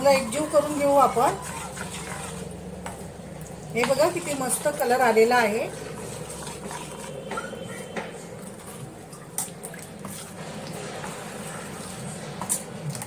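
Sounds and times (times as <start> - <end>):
spoon stirring wet batter: 0.0 - 13.0.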